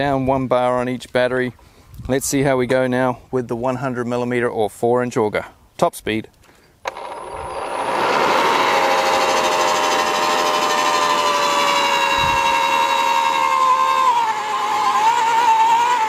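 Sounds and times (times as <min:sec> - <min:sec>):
post hole borer motor whine: 0:06.8 - 0:16.0.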